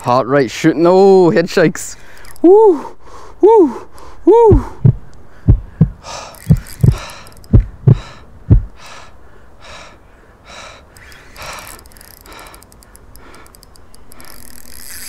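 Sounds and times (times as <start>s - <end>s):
person panting: 2.7s - 12.6s.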